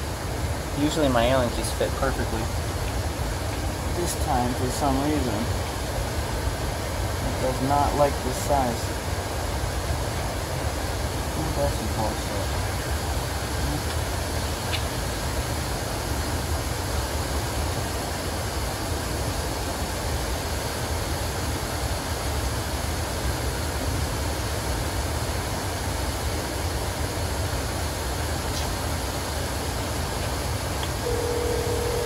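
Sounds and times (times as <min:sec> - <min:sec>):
rooftop air conditioner rumble: 0:00.0 - 0:32.0.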